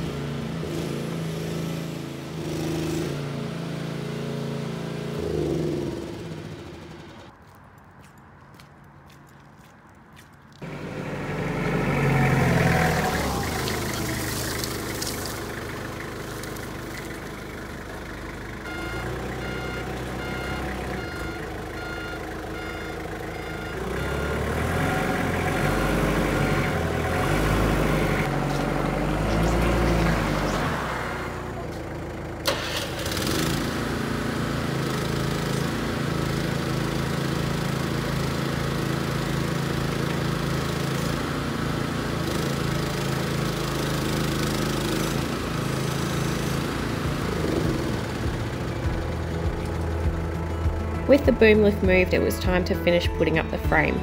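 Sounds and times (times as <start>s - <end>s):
forklift engine revving: 0.0s - 7.3s, 10.6s - 54.0s
small engine running steadily: 0.0s - 7.4s, 10.6s - 54.0s
beeping alarm: 18.6s - 25.1s.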